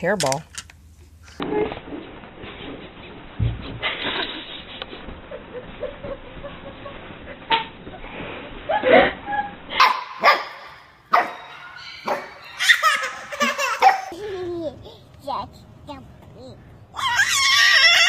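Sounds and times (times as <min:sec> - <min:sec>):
puppy yapping: 0:09.8 - 0:13.2, 0:16.9 - 0:18.0
baby giggling: 0:12.4 - 0:17.5.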